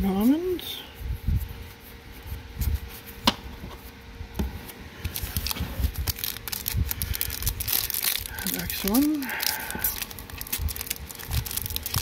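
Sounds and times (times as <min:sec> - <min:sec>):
foil wrapper rustling: 0:05.1 - 0:12.0.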